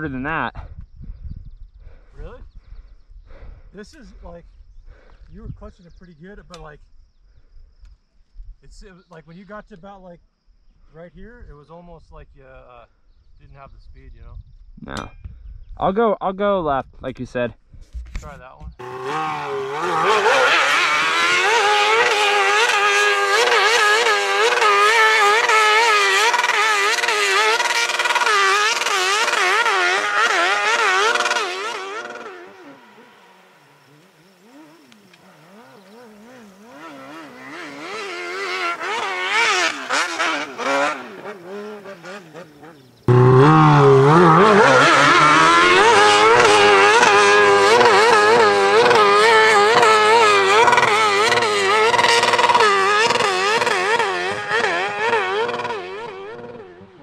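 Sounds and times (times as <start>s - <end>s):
dirt bike engine revving: 18.7s - 57.0s.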